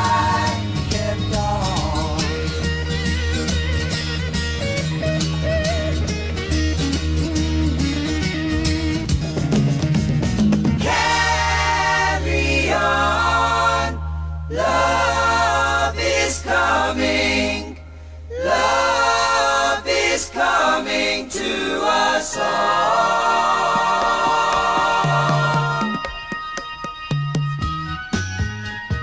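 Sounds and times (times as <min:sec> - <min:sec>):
voices singing in harmony: 0:00.0 - 0:02.8, 0:10.8 - 0:26.3.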